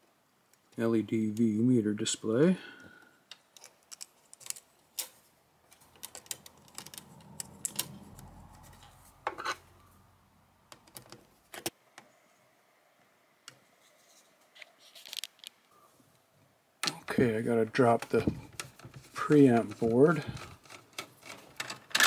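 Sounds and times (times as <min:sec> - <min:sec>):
small clicks and taps of parts: 0:03.3 - 0:08.3
faint low hum: 0:05.6 - 0:14.6.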